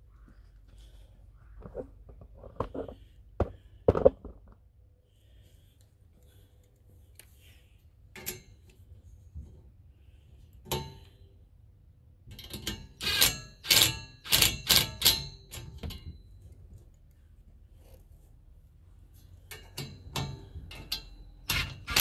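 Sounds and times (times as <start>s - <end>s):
impact wrench bursts: 13.0s - 15.1s, 21.5s - 22.0s.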